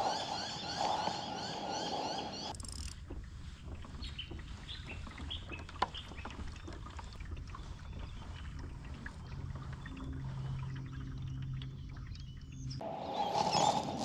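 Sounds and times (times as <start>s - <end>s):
bird chirps: 0.0s - 2.5s
water under moving kayak: 0.0s - 14.0s
low steady hum: 2.4s - 12.9s.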